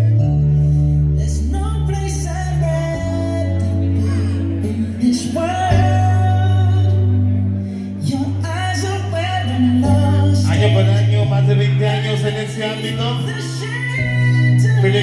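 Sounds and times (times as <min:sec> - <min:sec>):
deep held bass line: 0:00.0 - 0:15.0.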